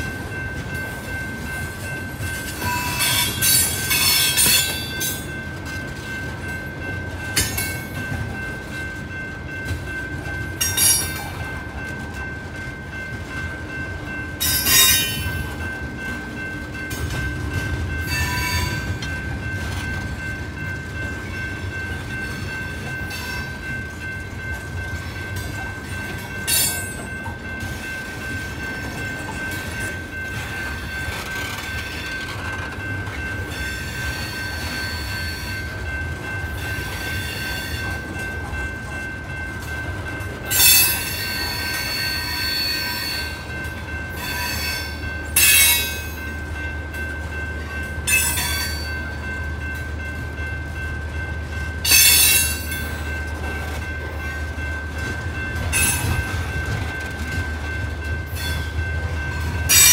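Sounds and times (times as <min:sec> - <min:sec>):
wheels squealing on rails: 0:00.0 - 0:06.2, 0:13.7 - 0:15.7, 0:16.4 - 0:24.4, 0:25.0 - 0:39.1, 0:40.4 - 0:46.7, 0:48.0 - 0:49.7, 0:51.8 - 0:54.3, 0:54.9 - 0:59.9
freight train rumbling past: 0:00.0 - 0:59.9.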